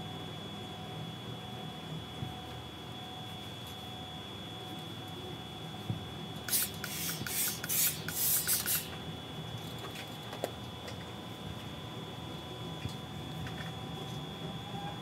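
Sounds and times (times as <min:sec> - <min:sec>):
steam iron hissing bursts: 0:06.5 - 0:08.9.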